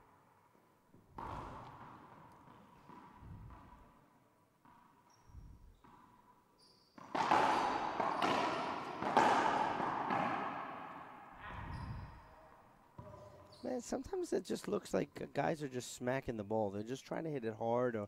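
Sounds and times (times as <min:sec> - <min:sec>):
racquetball hits echoing: 0:01.0 - 0:06.3, 0:06.9 - 0:13.6
sneakers squeaking on hardwood: 0:01.1 - 0:03.9, 0:04.6 - 0:13.9.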